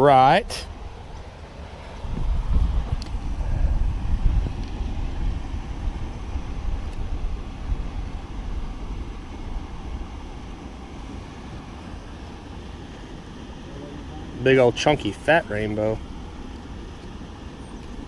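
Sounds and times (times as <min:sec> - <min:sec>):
low rumble on microphone: 0:00.5 - 0:11.8.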